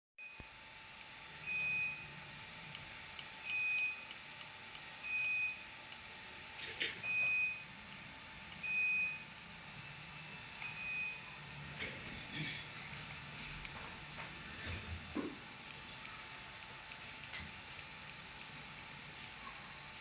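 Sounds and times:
faint high-pitched whine: 15.1 - 20.0.

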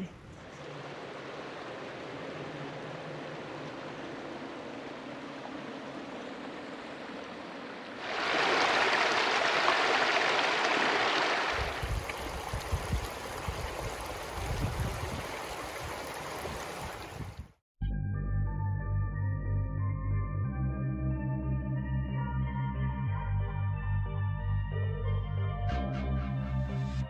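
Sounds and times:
creek rushing over rocks: 0.4 - 17.4
soft ambient music: 17.8 - 27.0.

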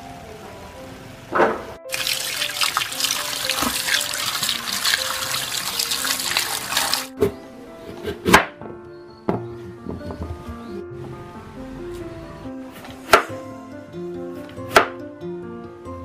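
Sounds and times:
soft background music: 0.0 - 16.0
running water splashing on hands: 1.9 - 7.1.

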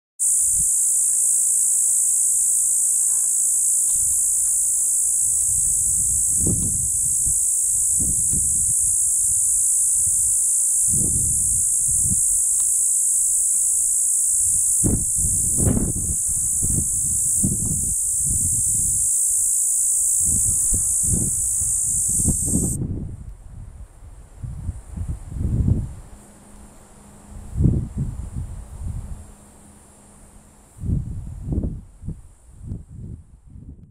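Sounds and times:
cicada buzzing: 0.2 - 22.8.

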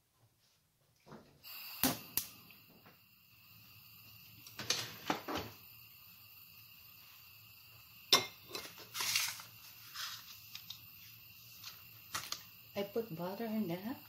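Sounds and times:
kitchenware clinking: 8.1 - 9.3.

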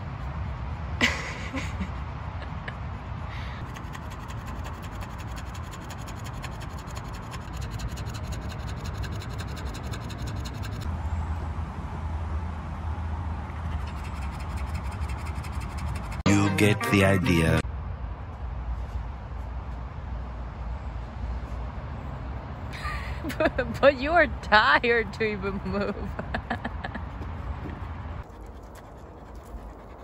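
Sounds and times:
dog panting: 2.6 - 10.9, 13.6 - 16.2, 27.1 - 30.0.

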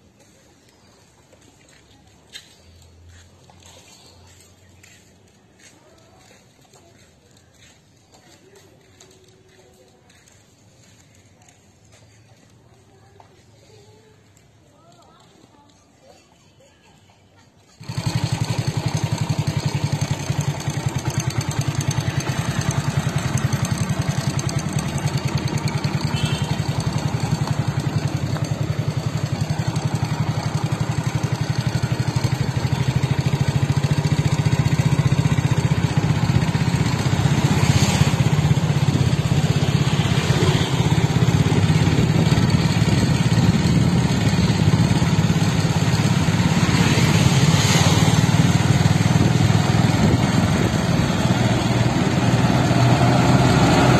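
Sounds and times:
motorcycle engine running: 17.6 - 53.9.

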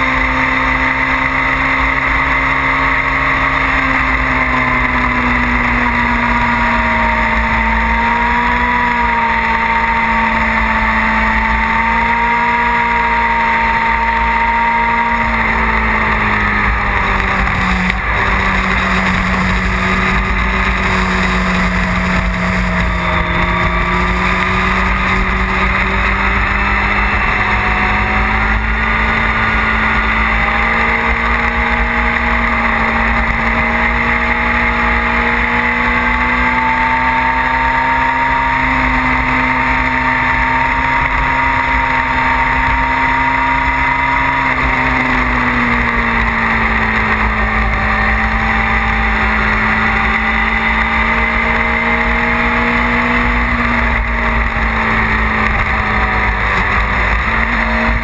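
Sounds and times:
motorcycle engine running hard: 0.0 - 58.0.

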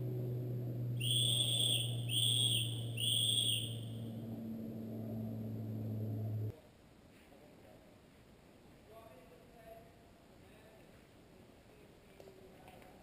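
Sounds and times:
steady low hum: 0.0 - 6.6
high-pitched whistle blasts: 1.0 - 4.1.

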